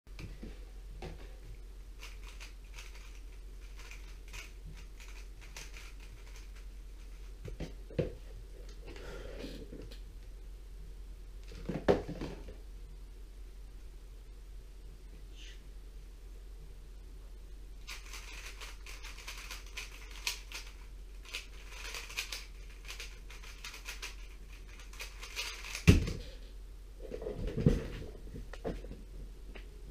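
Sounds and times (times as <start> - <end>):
puzzle cube plastic clicking: 17.9 - 25.9
plastic cube clicking: 24.7 - 25.9
cube thumping on mat: 25.8 - 26.2.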